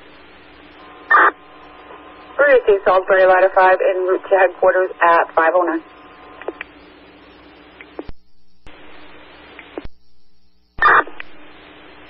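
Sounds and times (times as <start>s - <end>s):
radio transmission burst: 0.0s - 8.1s, 10.8s - 12.0s
faint steady hum: 0.0s - 12.0s
radio static hiss: 0.0s - 12.0s
radio click: 6.3s - 6.8s, 7.8s - 10.0s, 10.8s - 11.4s.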